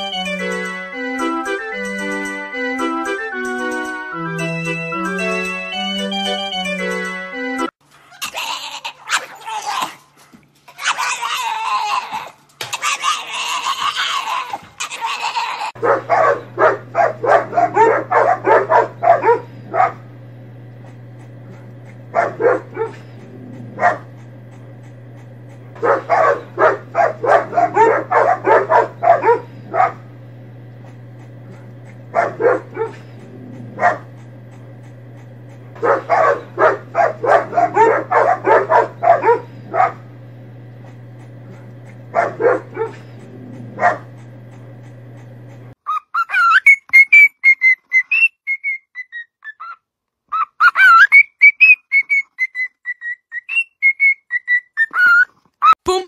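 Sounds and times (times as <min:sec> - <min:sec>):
dogs barking: 0:10.7 - 0:45.7
steady low hum: 0:15.8 - 0:45.8.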